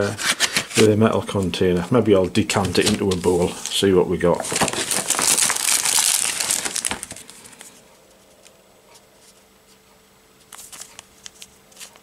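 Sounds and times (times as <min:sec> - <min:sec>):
faint steady hum: 0:00.0 - 0:12.0
plastic packaging crinkling: 0:00.2 - 0:08.5, 0:10.4 - 0:12.0.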